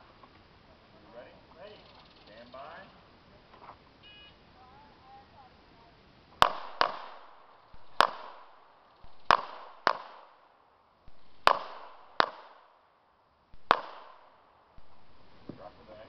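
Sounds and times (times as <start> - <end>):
pistol shots echoing: 6.4 - 15.4.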